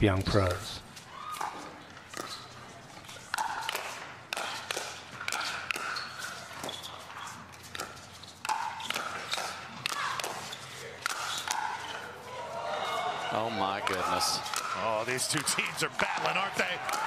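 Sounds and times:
crowd noise: 9.8s - 17.0s.

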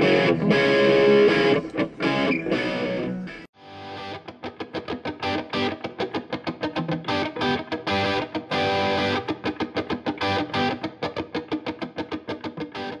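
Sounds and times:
electric guitar music: 0.0s - 13.0s.

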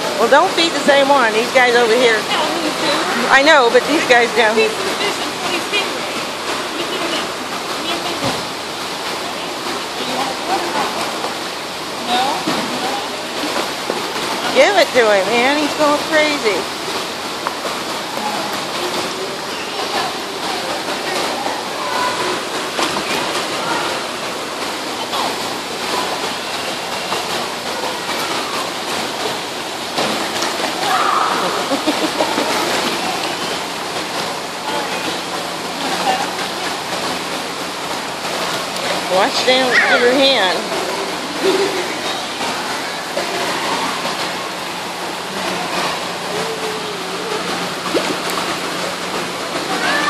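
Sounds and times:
water rushing and sloshing: 0.0s - 50.0s.

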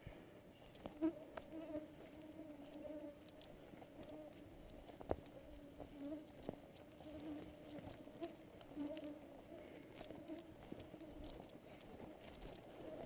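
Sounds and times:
sharp clicks: 0.6s - 1.5s, 2.7s - 9.0s, 10.0s - 12.7s
insect buzzing: 0.6s - 11.6s.

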